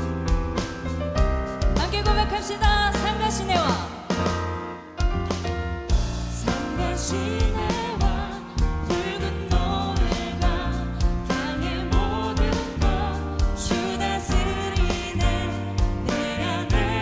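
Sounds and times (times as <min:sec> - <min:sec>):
bass: 0:00.0 - 0:17.0
steady drum beat: 0:00.0 - 0:17.0
voices singing: 0:06.4 - 0:17.0.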